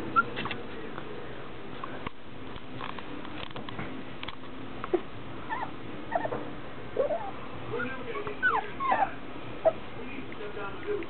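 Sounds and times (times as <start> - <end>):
puppies whimpering: 0.0 - 0.6, 4.9 - 6.4, 7.0 - 9.9.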